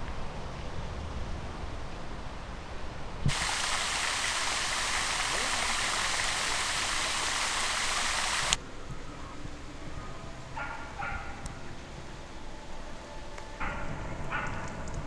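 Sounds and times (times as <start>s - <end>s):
quiet open-air ambience: 0.0s - 15.0s
fountain water splashing: 3.2s - 8.6s.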